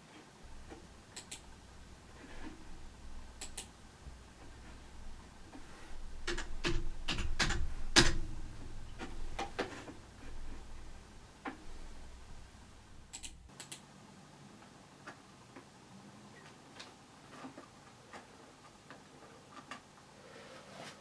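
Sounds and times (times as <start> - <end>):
computer mouse clicks: 0.7 - 1.5, 3.4 - 3.7, 13.1 - 13.8
keyboard keys tapping: 5.5 - 10.8.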